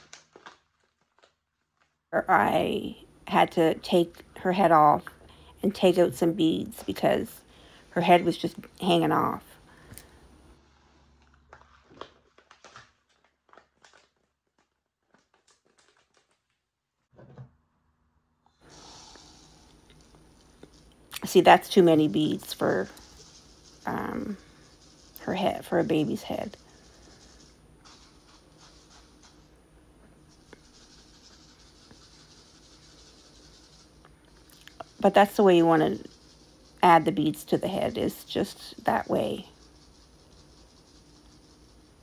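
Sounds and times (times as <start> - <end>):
faint rustling and scratching: 18.7 - 42.0.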